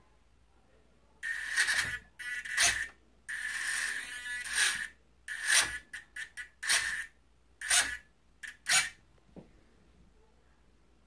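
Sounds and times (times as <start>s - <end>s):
servo whirring: 1.2s - 9.0s.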